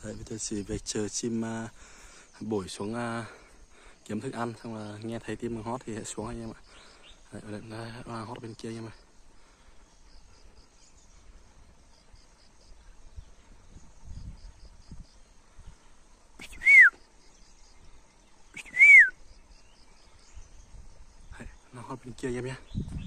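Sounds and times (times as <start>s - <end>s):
faint high chirping: 1.2s - 23.0s
loud whistled notes: 16.4s - 17.0s, 18.6s - 19.2s.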